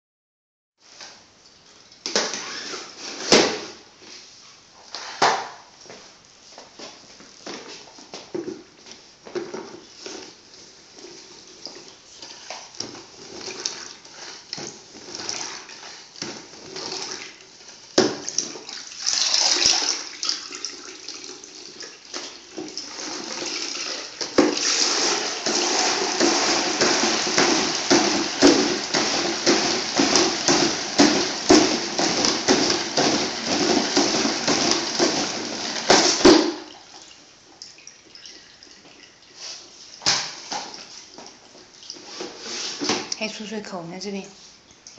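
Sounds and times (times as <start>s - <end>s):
mop knocking and splashing water: 11.0s - 43.1s
spin mop whirring with clicking: 22.2s - 36.4s.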